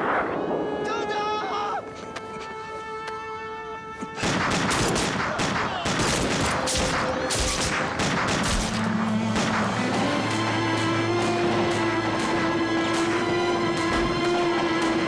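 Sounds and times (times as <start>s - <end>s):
music: 0.2s - 15.0s
rapid volley of gunshots: 4.2s - 10.4s.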